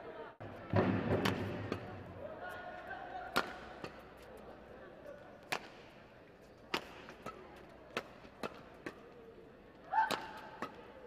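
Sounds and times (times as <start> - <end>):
racket hitting shuttlecock: 0.8 - 1.9, 3.3 - 4.1, 5.5 - 5.8, 6.7 - 9.0, 10.0 - 11.0.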